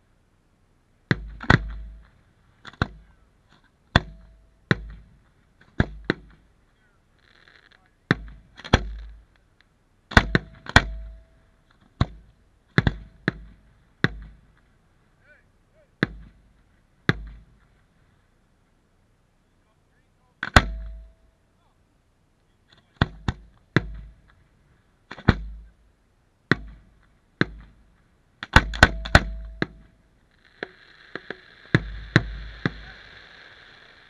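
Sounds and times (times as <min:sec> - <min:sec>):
firework shells booming: 0:07.2 - 0:09.4, 0:10.1 - 0:14.8, 0:26.5 - 0:33.3.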